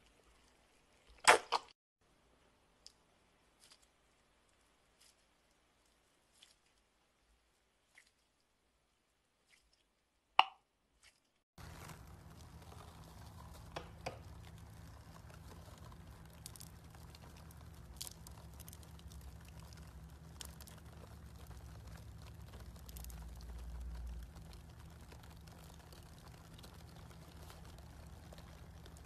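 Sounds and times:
low steady hum: 11.6 - 29.0
slime crackling and clicking: 11.6 - 29.0.

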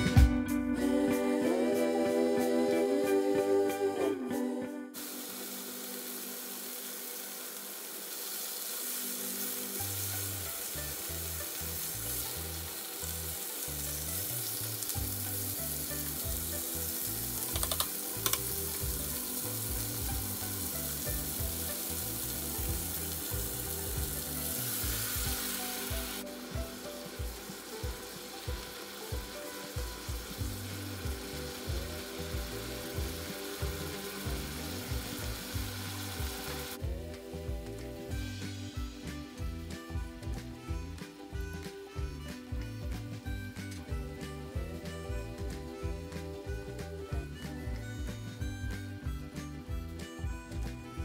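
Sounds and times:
chicken sizzling in frying pan: 5.0 - 49.7
tongs clicking against pan: 17.4 - 18.6.

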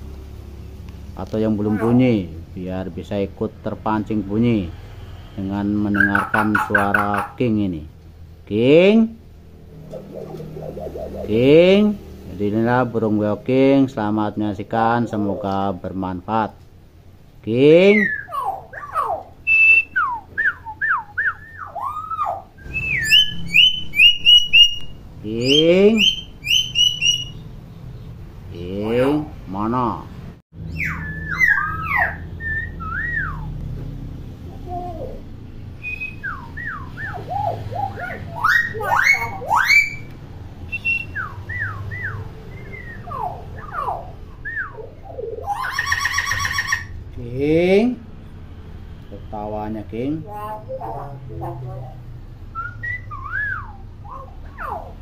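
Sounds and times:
bird pulsed chatter: 5.9 - 7.4, 9.6 - 11.8, 17.9 - 28.2
myna bird whistling: 5.9 - 7.4, 9.7 - 11.6, 17.9 - 28.2, 30.6 - 33.6, 34.9 - 47.0, 52.5 - 55.0.

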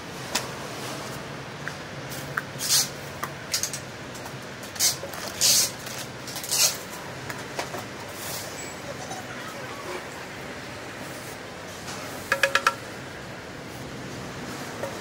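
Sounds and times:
plastic bags and bubble wrap rustling: 4.7 - 7.0.

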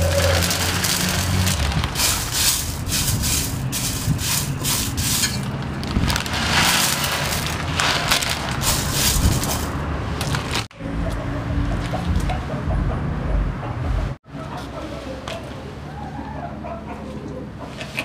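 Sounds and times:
dry peas rattling in steel pot: 0.0 - 9.8.

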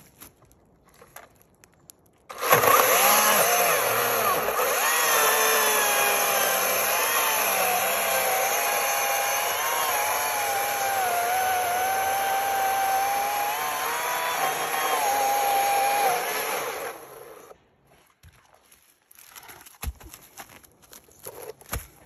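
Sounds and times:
electric chainsaw cutting log: 2.3 - 17.6.

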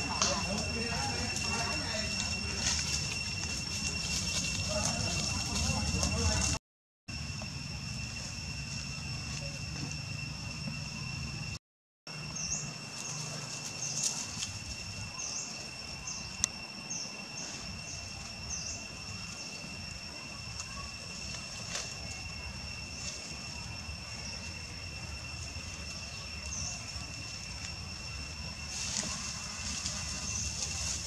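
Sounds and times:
high-pitched two-tone drone: 0.0 - 11.6.

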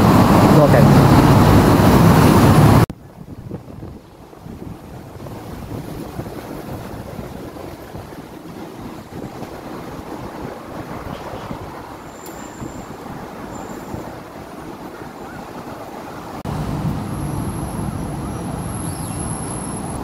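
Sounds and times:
roadside traffic noise: 0.0 - 20.0.

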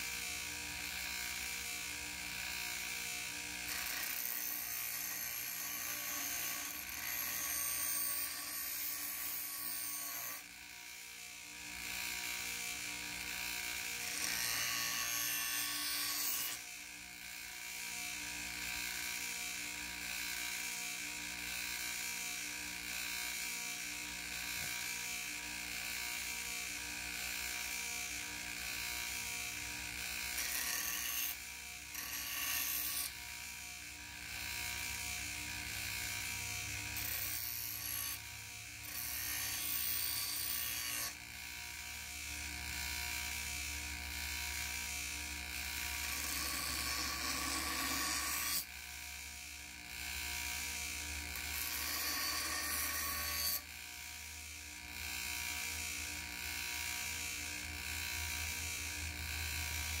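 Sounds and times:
bench grinder motor running: 0.0 - 60.0
blade grinding on wheel: 3.7 - 10.4, 30.2 - 33.2, 34.3 - 41.2, 45.6 - 48.7, 51.3 - 53.7.

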